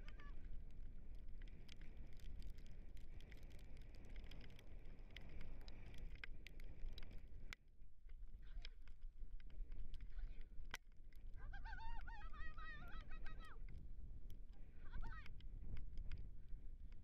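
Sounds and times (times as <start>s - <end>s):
wind buffeting microphone: 9.0s - 17.0s.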